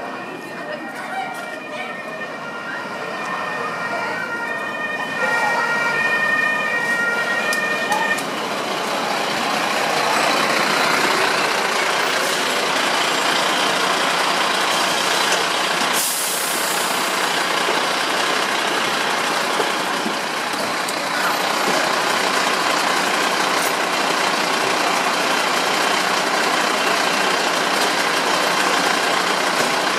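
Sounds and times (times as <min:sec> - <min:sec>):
two-tone fire engine siren: 0:00.0 - 0:22.3
diesel truck engines running: 0:02.9 - 0:29.9.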